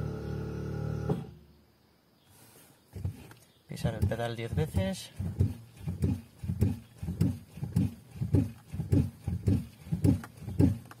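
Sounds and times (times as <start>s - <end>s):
brake pedal groaning: 3.0s - 11.0s.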